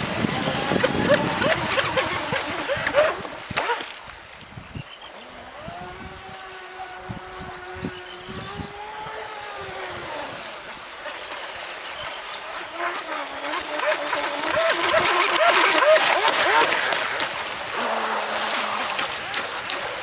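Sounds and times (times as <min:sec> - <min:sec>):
distant electric motor whine: 0:05.0 - 0:20.0.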